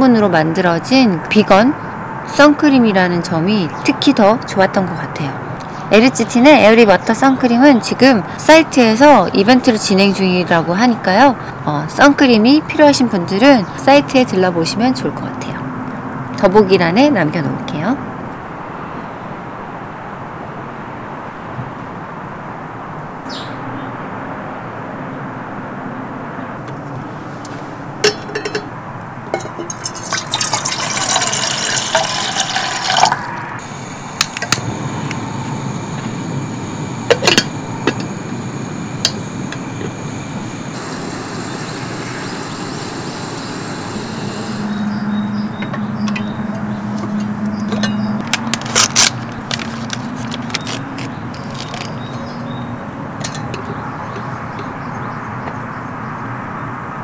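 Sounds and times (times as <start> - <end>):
metal lid clinking: 28.0 - 28.7, 29.3 - 33.2, 37.1 - 38.0
water pouring into kettle: 29.4 - 34.4, 38.8 - 44.6
paper bag tearing: 48.6 - 52.0.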